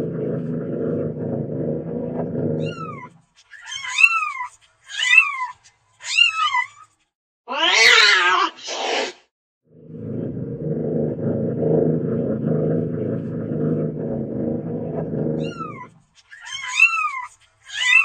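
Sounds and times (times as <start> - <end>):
cat purring rumble: 0.0 - 3.1, 9.8 - 16.0
cat yowling: 2.6 - 5.5, 7.5 - 8.6, 15.4 - 18.0
cat meowing: 7.5 - 8.6, 15.4 - 18.0.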